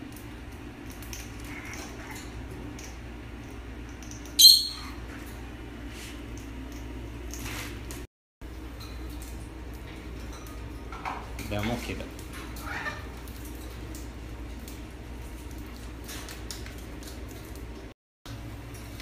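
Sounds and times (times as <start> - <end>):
parrot squeak: 4.4 - 5.0.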